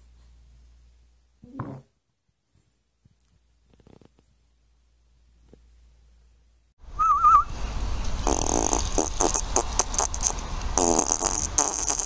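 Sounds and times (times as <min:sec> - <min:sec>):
wavering whistle-like tone: 0:06.9 - 0:07.6
fart noises: 0:08.2 - 0:12.0.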